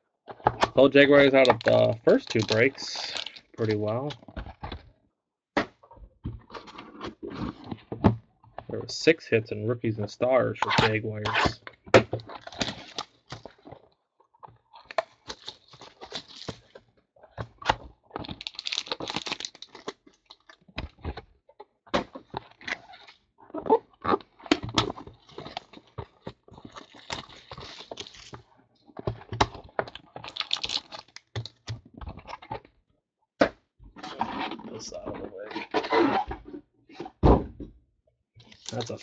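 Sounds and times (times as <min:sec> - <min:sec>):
foil and cardboard crinkling: 0:01.1 - 0:04.0, 0:15.2 - 0:16.8, 0:18.2 - 0:20.6, 0:25.1 - 0:28.4, 0:30.2 - 0:31.6, 0:38.4 - 0:39.0.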